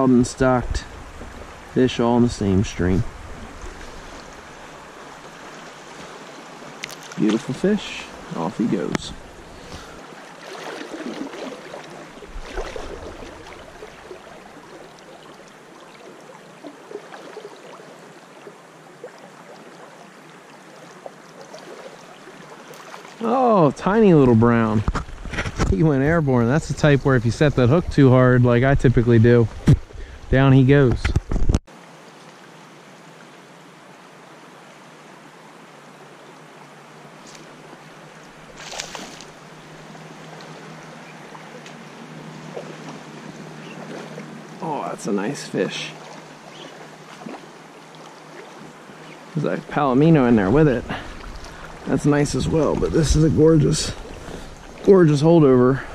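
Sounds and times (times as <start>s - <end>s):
shallow stream riffling: 0.0s - 55.9s
water sloshing against legs: 9.2s - 23.3s, 38.2s - 44.7s, 45.8s - 49.4s, 50.2s - 53.2s, 53.9s - 54.9s.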